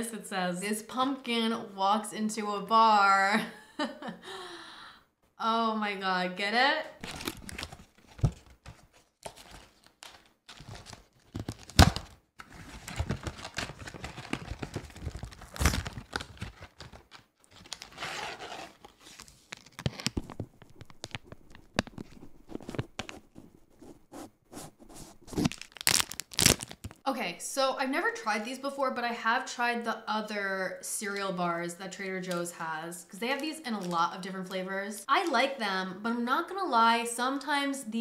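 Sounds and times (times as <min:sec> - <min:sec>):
wrapper crinkling: 0:07.0 - 0:08.4, 0:09.2 - 0:23.2, 0:25.3 - 0:27.0
cardboard box being torn open: 0:10.5 - 0:17.0, 0:25.3 - 0:26.9.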